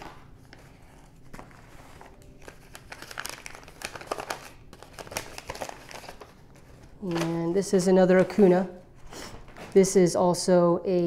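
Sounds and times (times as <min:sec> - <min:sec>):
paper envelope crinkling: 0:00.0 - 0:08.7.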